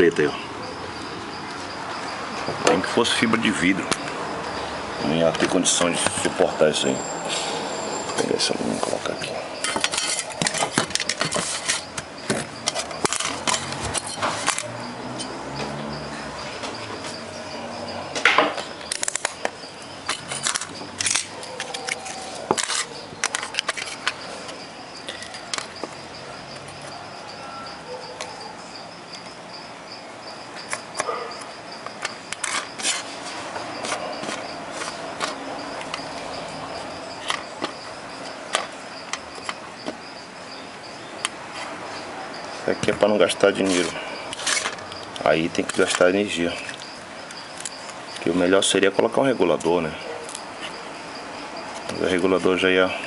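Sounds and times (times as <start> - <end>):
small metal parts clicking: 18.8 - 24.2.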